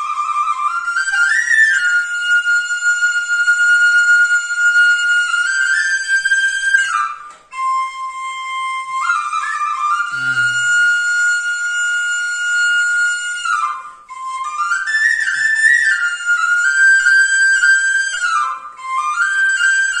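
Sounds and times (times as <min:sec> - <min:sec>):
bamboo flute melody: 0:00.0 - 0:20.0.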